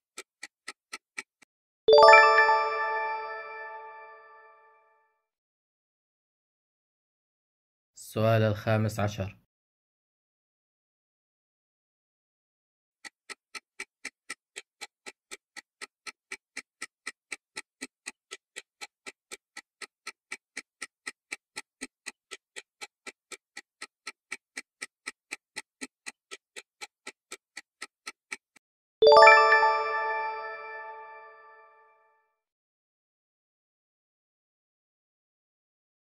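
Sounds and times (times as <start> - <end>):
clock-like timer ticking: 0.0 - 3.6, 13.0 - 30.8
bell-like chime: 1.9 - 4.5, 29.0 - 31.8.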